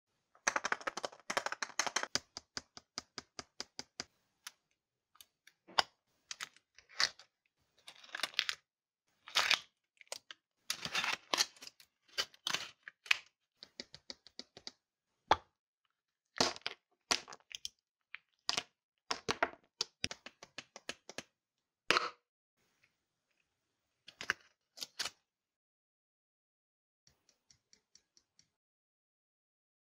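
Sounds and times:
chocolate shell cracking: 0:00.5 - 0:02.8.

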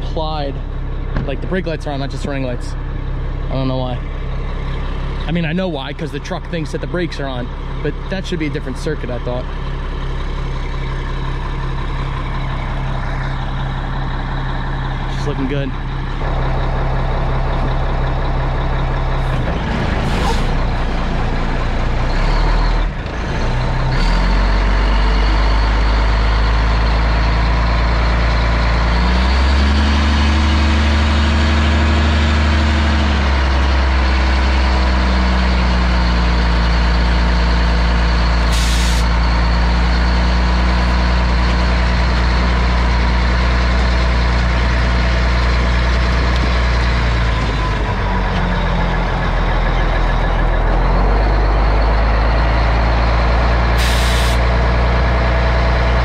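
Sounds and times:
fire truck diesel engine running: 0:00.0 - 0:56.0
air brake hisses: 0:38.5 - 0:39.1, 0:53.8 - 0:54.4.

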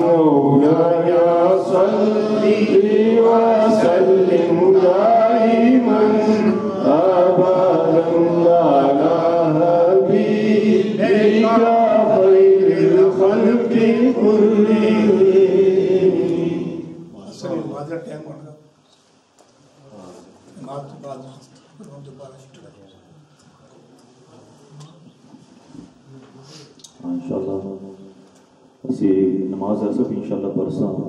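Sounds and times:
man chanting into a microphone: 0:00.0 - 0:15.8.

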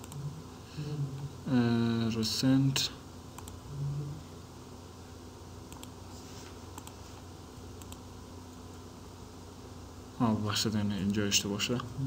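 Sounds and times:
computer mouse clicks: 0:00.0 - 0:00.2, 0:03.4 - 0:03.6, 0:05.7 - 0:06.0, 0:06.7 - 0:07.0, 0:07.8 - 0:08.0
steady low hum: 0:00.0 - 0:12.0.

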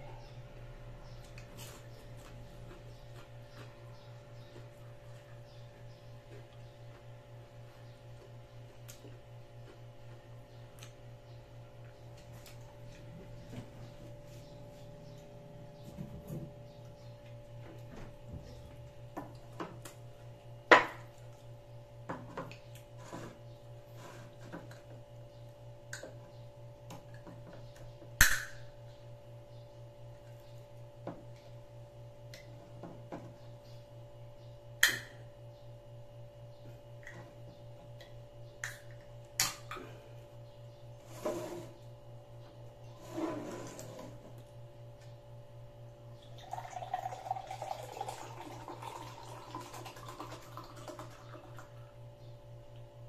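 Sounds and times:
steady low hum: 0:00.0 - 0:53.0
juice pouring into a glass: 0:46.4 - 0:51.9.

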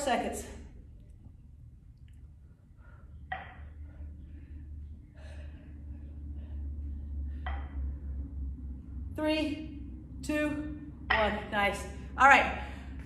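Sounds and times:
low steady hum: 0:00.0 - 0:13.0
woman breathing hard: 0:02.7 - 0:08.2.

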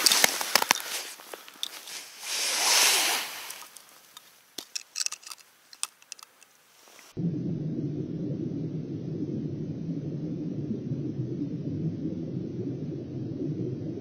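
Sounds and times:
low underwater rumble: 0:07.2 - 0:14.0.

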